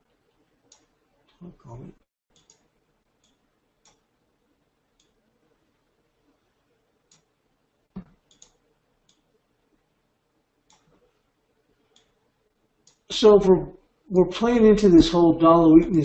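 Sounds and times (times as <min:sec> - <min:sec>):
computer mouse clicking: 0:00.3 - 0:00.9, 0:02.3 - 0:04.1, 0:05.0 - 0:05.2, 0:07.0 - 0:07.3, 0:08.0 - 0:09.3, 0:10.7 - 0:11.1, 0:11.9 - 0:12.2, 0:12.8 - 0:13.1.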